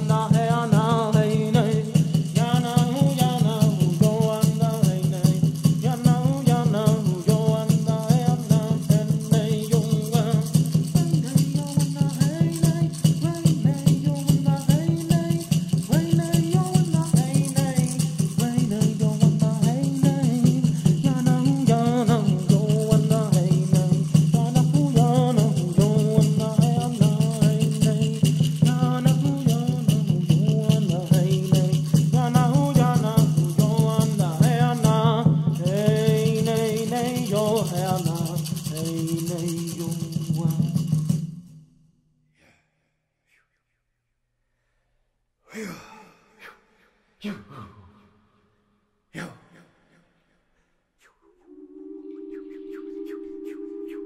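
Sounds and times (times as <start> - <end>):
gourd rattle shaking: 0.0 - 41.5
low steady drone: 51.2 - 54.0
chanted melody: 51.3 - 54.0.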